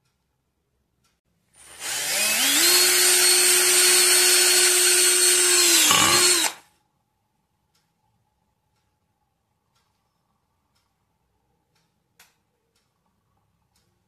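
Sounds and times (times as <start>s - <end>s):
cordless drill motor whine: 1.6s - 6.6s.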